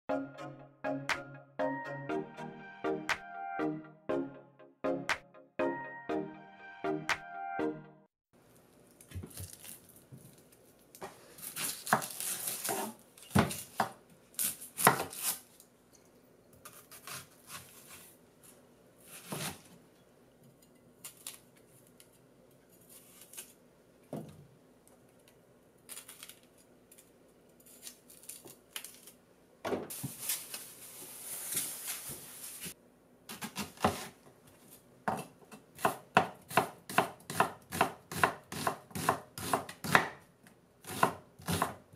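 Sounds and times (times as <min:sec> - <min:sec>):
onion skin rustling: 0:08.9 - 0:15.7, 0:21.0 - 0:23.6, 0:25.9 - 0:29.2, 0:29.9 - 0:32.8
knife chopping on cutting board: 0:14.8 - 0:15.2, 0:35.1 - 0:40.2, 0:40.8 - 0:41.8.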